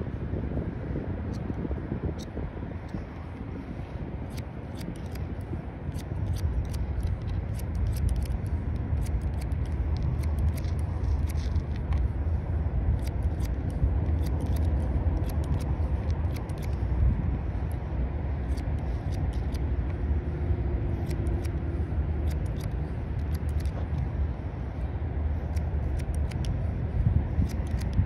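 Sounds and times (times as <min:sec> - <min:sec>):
steady low rumble: 0:00.0 - 0:28.0
scissors snipping hair: 0:04.2 - 0:12.1, 0:12.8 - 0:17.0, 0:18.4 - 0:24.1, 0:25.5 - 0:26.6, 0:27.3 - 0:28.0.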